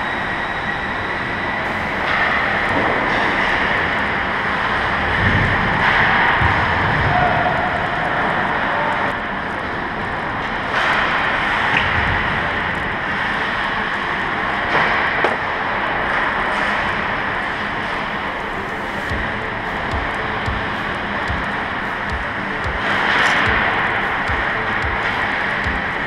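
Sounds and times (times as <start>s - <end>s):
hockey sticks clicking on puck: 2.0s - 4.1s, 20.7s - 26.0s.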